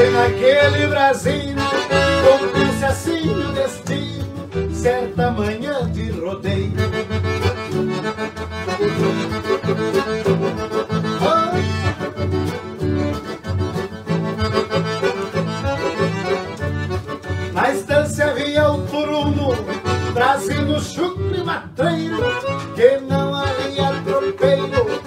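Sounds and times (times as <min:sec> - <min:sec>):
acoustic guitar accompaniment: 0:00.0 - 0:25.0
piano accordion playing: 0:00.0 - 0:25.0.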